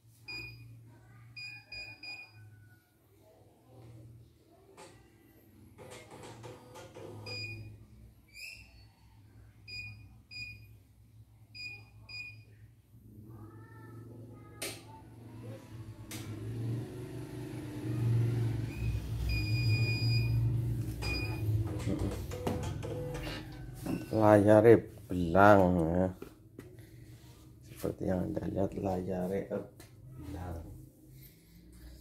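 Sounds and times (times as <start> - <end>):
control panel beeps: 18.7 - 21.6.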